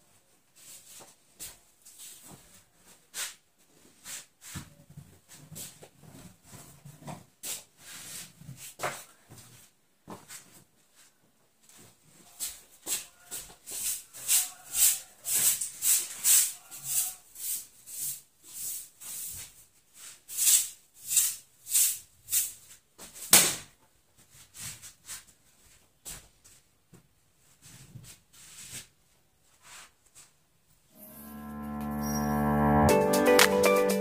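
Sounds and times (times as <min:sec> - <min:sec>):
hand broom swishing across floor: 0:13.7 - 0:22.5.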